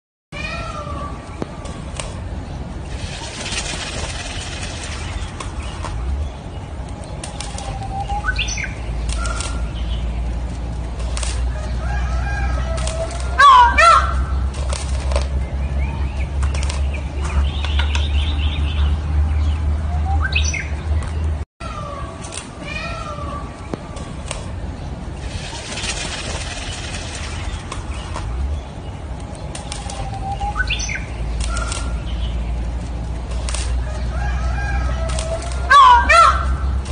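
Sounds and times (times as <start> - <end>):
peacock feathers rustling: 1.6 - 6.1, 10.3 - 11.7, 12.6 - 13.8, 14.4 - 15.4, 22.2 - 30.4, 31.3 - 35.8
feathers rustling and rattling: 2.8 - 6.0, 25.1 - 28.4
steady low rumble: 20.7 - 35.7.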